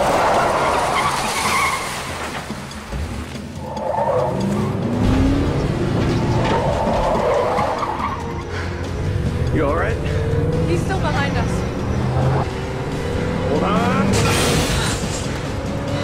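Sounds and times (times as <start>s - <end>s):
car engines running hard: 2.5s - 16.0s
engine revving: 3.6s - 16.0s.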